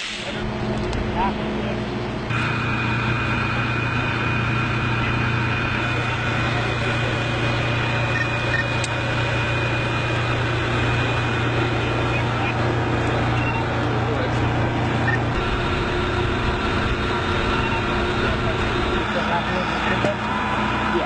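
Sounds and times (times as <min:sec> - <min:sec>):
engine running steadily: 0:00.0 - 0:21.0
thin high whine: 0:15.1 - 0:19.9.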